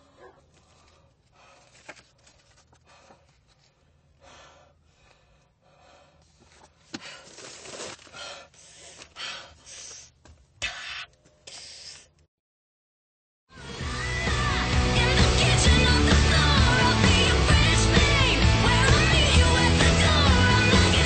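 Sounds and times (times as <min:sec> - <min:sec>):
gasping breaths: 0:00.0 - 0:12.1.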